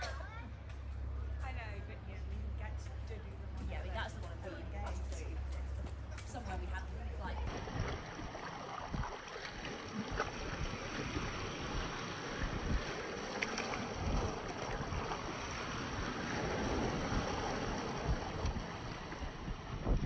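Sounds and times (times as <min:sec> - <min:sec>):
wind buffeting microphone: 0:01.0 - 0:20.0
lake waves splashing over rocks: 0:07.4 - 0:19.8.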